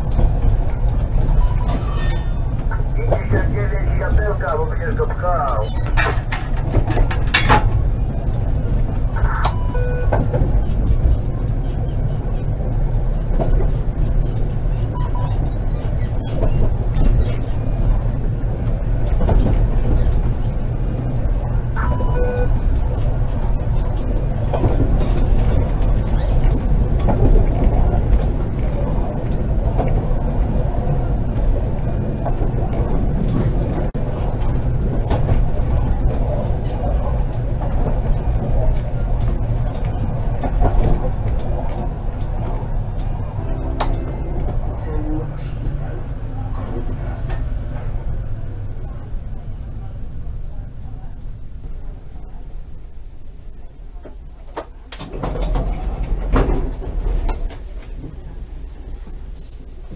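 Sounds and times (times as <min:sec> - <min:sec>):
tram rumbling on rails: 0:00.0 - 0:59.9
sharp clicks and knocks: 0:05.0 - 0:08.5.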